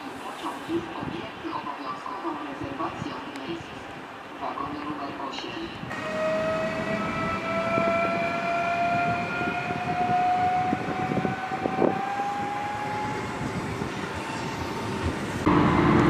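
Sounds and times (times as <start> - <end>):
electric train motor whine: 5.9 - 16.0
wheels rumbling on track: 5.9 - 16.0.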